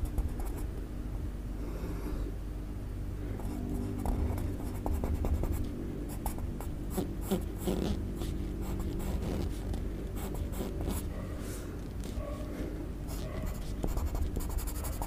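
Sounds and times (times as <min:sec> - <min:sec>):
steady low hum: 0:00.0 - 0:15.0
pencil scratching on paper: 0:06.2 - 0:11.1, 0:13.1 - 0:15.0.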